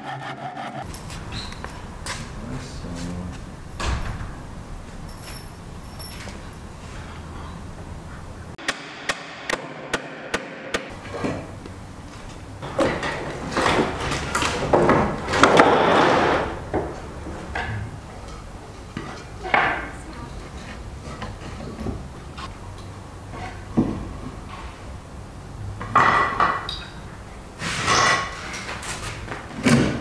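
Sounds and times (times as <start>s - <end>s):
hammer striking nails into wood: 8.6s - 10.9s
wooden planks clattering: 12.2s - 17.8s.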